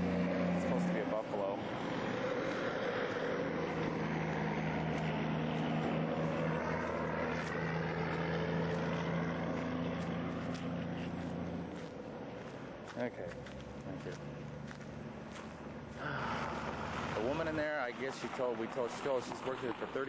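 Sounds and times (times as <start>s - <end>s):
engine droning steadily: 0.0s - 20.0s.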